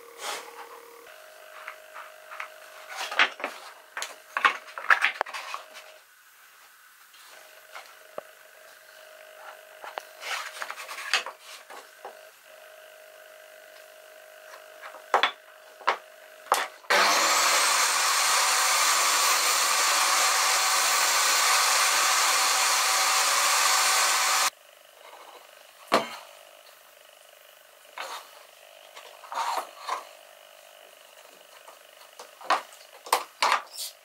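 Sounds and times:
loud power tool running: 0:14.6 - 0:24.9.

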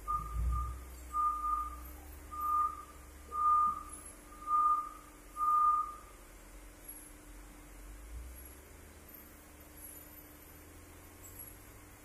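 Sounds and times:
high-pitched warning beeps: 0:00.0 - 0:06.1
faint low machinery hum: 0:00.0 - 0:12.0.

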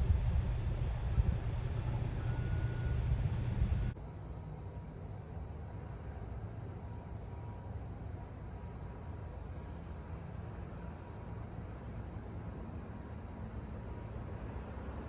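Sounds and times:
low steady rumble: 0:00.0 - 0:04.0
insect chirping: 0:00.2 - 0:04.0.

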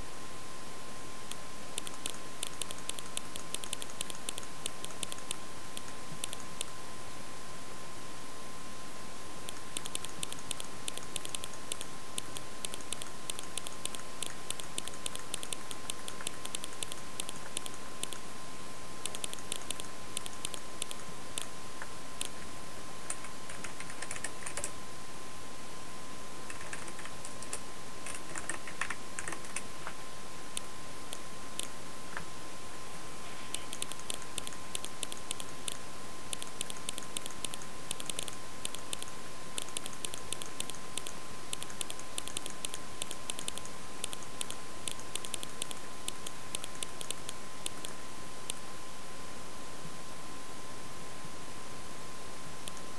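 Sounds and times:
faint steady tone: 0:00.0 - 0:28.1, 0:29.8 - 0:52.9
background hiss: 0:00.0 - 0:52.9
keyboard typing: 0:01.3 - 0:06.8, 0:09.5 - 0:18.2, 0:19.0 - 0:21.5, 0:23.1 - 0:24.7, 0:26.5 - 0:29.6, 0:33.5 - 0:48.6, 0:52.6 - 0:52.9.

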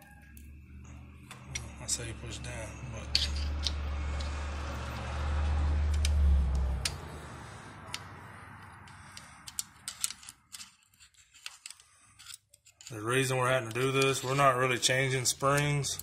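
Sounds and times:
metallic tool clicks and taps: 0:05.9 - 0:07.0, 0:07.9 - 0:10.2.

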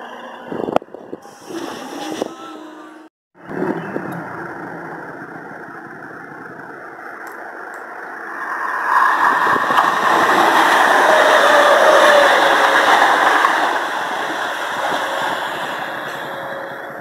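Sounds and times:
train passing at speed: 0:07.9 - 0:17.0.

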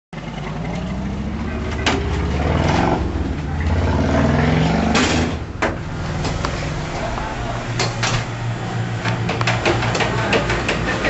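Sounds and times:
vehicle engine running: 0:00.2 - 0:11.0.

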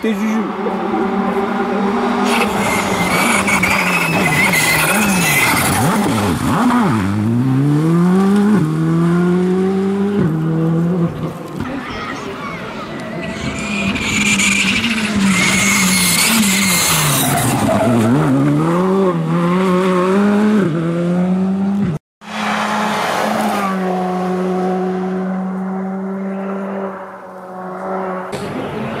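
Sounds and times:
rally car engine revving: 0:00.0 - 0:11.7, 0:12.9 - 0:29.0
tyres squealing: 0:02.2 - 0:06.2, 0:11.7 - 0:18.2.

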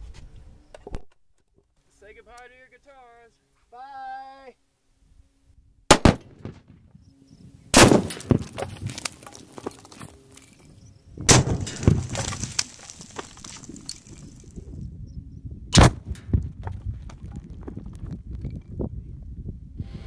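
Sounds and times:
crackles and debris rattling down: 0:07.8 - 0:14.8, 0:16.0 - 0:18.9
explosion booms: 0:11.3 - 0:12.6.

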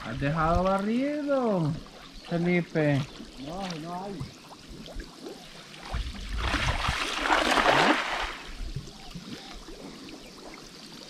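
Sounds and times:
water splashing from cast net: 0:02.9 - 0:08.7.

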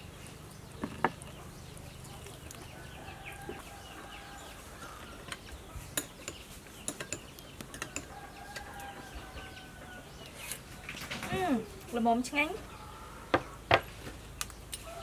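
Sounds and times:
faint rooster crowing: 0:02.7 - 0:05.4, 0:07.8 - 0:11.0, 0:14.8 - 0:15.0.

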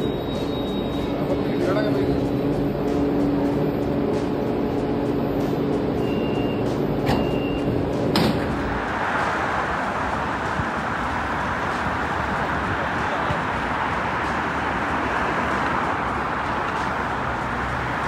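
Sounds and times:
high warning beeps: 0:00.0 - 0:02.1, 0:05.9 - 0:07.8
road traffic noise: 0:00.0 - 0:18.0
sliding doors shutting with a knock: 0:07.0 - 0:07.4, 0:08.0 - 0:08.6.

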